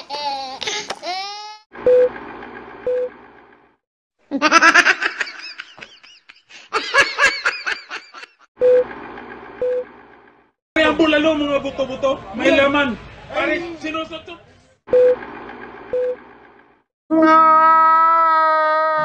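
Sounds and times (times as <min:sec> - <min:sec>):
projector whirring: 0:08.8 - 0:10.4, 0:15.0 - 0:16.8.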